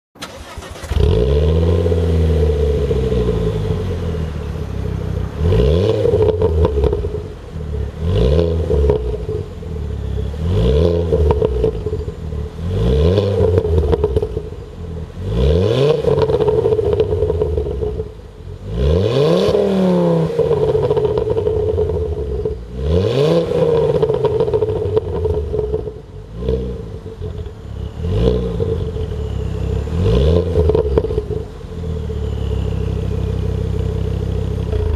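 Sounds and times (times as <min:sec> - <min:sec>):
car engine revving: 0:00.2 - 0:34.9
car engine starting and idling: 0:00.2 - 0:34.9.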